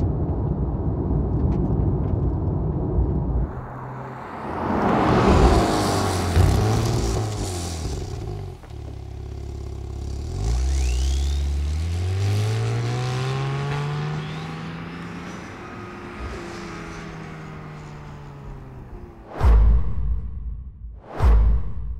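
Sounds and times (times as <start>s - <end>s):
sports car accelerating: 3.5s - 19.3s.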